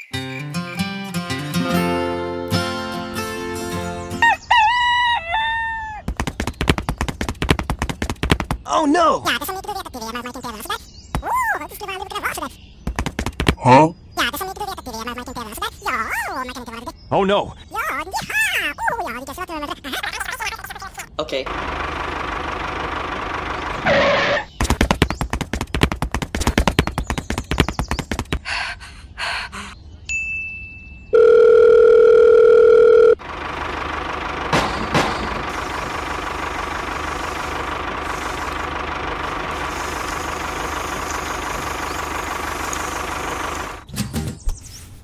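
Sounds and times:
tractor engine running: 0:06.0 - 0:08.7, 0:09.3 - 0:13.6, 0:20.4 - 0:28.4, 0:33.2 - 0:43.9
rapid knocking clatter: 0:06.1 - 0:08.7, 0:12.9 - 0:13.6, 0:24.6 - 0:28.4, 0:34.3 - 0:43.8.

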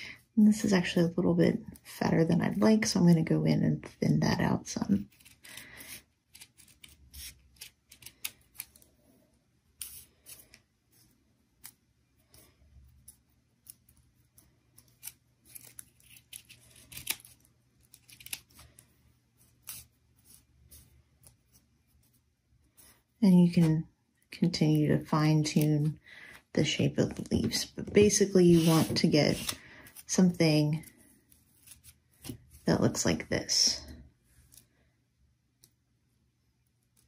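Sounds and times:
scissors snipping paper: 0:05.0 - 0:08.8, 0:12.9 - 0:18.7.

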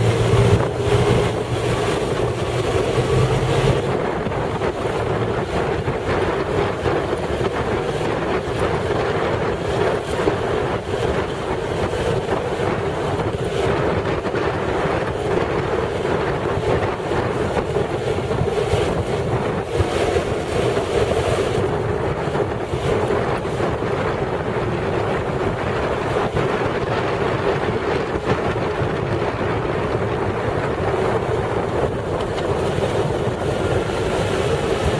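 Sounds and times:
motorcycle engine: 0:00.0 - 0:04.7
road noise: 0:00.0 - 0:34.9
wind rushing over microphone: 0:00.0 - 0:34.9.

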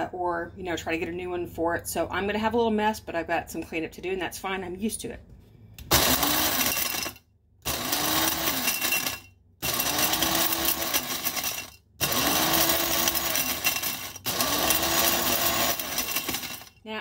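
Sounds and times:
blade coffee grinder whirring: 0:05.9 - 0:16.7.

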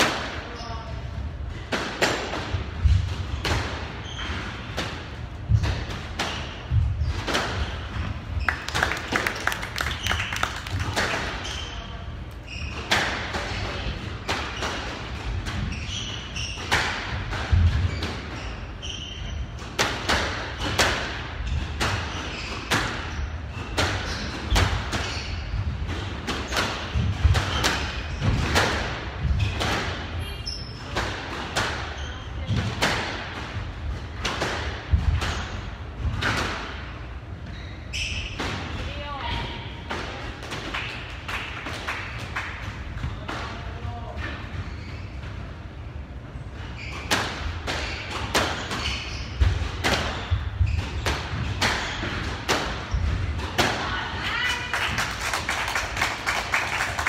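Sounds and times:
shoes squeaking on court floor: 0:03.3 - 0:04.7, 0:11.3 - 0:14.9, 0:15.6 - 0:17.0, 0:17.8 - 0:19.6, 0:21.4 - 0:25.7, 0:31.8 - 0:32.5, 0:37.4 - 0:38.4, 0:44.2 - 0:45.8, 0:46.4 - 0:52.2.

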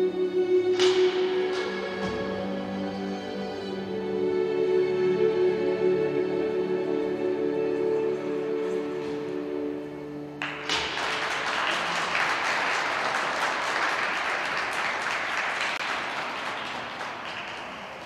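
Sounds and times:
audience applause: 0:10.4 - 0:18.0.

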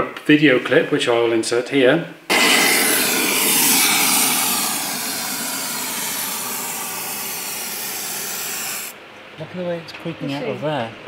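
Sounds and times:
aerosol can spraying hiss: 0:02.3 - 0:08.9.

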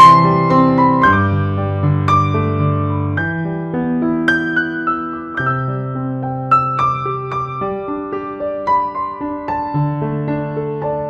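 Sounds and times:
slow gentle piano music: 0:00.0 - 0:11.0.

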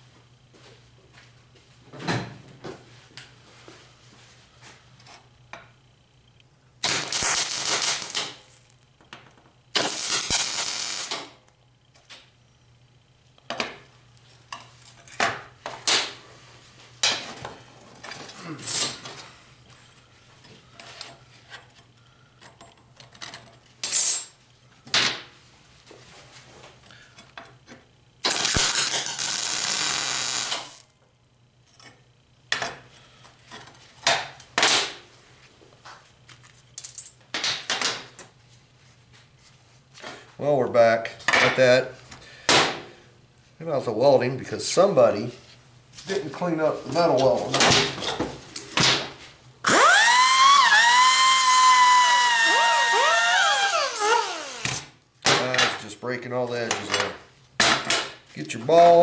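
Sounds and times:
welding arc crackle: 0:06.8 - 0:08.7, 0:09.7 - 0:11.3, 0:28.2 - 0:30.9, 0:49.7 - 0:54.8.

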